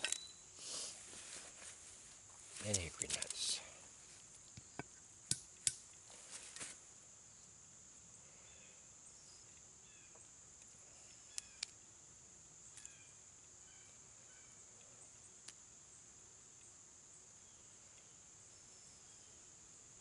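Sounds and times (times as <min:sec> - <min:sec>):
insects buzzing: 0:00.0 - 0:20.0
sharp clicks: 0:11.3 - 0:11.8.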